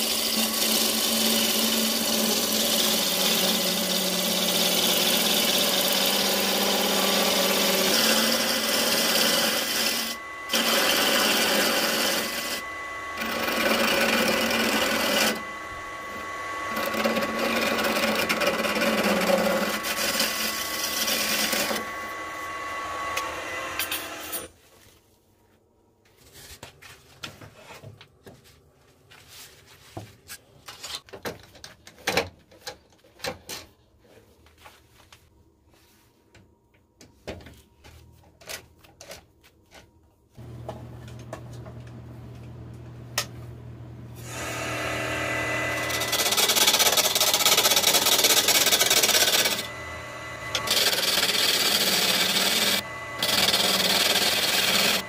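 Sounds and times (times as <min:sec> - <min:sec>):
gouge shaving wood: 0:00.0 - 0:15.6, 0:16.2 - 0:22.8, 0:44.2 - 0:55.0
lathe motor humming: 0:00.3 - 0:24.2, 0:40.4 - 0:55.0.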